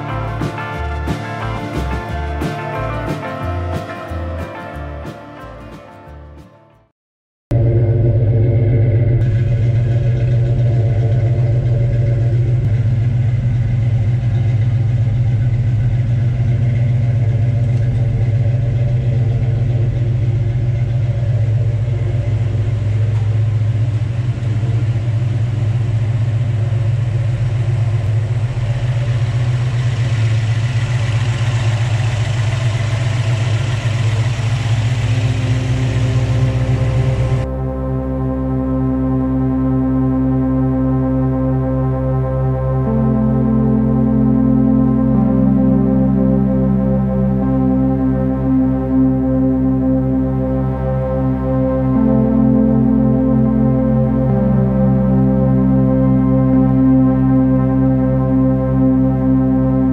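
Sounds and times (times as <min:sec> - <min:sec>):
car engine idling: 0:07.5 - 0:59.9
engine bay hiss and whir: 0:07.6 - 0:37.5.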